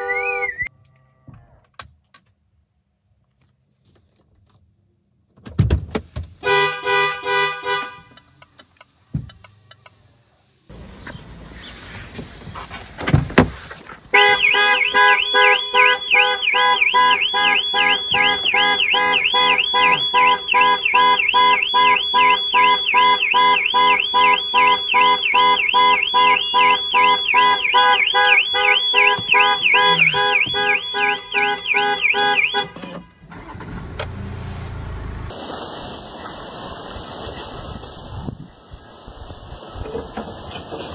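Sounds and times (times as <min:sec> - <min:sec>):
car alarm siren warbling: 0:00.0 - 0:00.7, 0:14.2 - 0:33.6.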